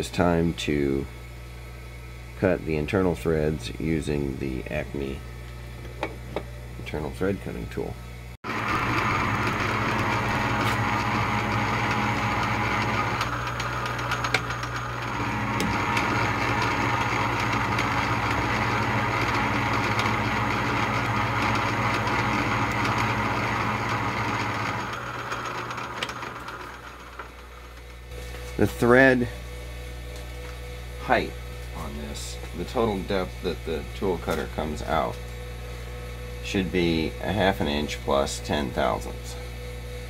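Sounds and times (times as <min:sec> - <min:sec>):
lathe motor running: 0:08.4 - 0:29.4.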